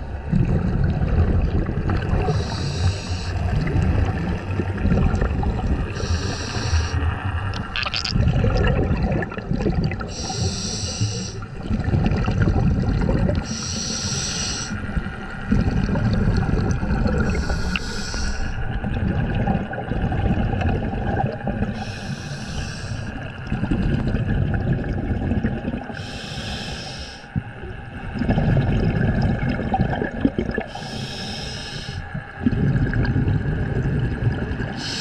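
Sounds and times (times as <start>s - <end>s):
exhale bubbling rumble: 0.0s - 35.0s
regulator hissing inhale: 2.3s - 3.4s, 6.0s - 7.0s, 10.1s - 11.5s, 13.4s - 14.9s, 17.3s - 18.7s, 21.7s - 23.3s, 25.9s - 27.4s, 30.7s - 32.2s, 34.8s - 35.0s.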